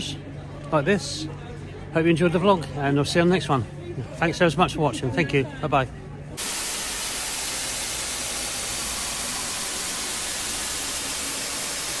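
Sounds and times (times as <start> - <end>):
white noise static hiss: 6.4 - 12.0.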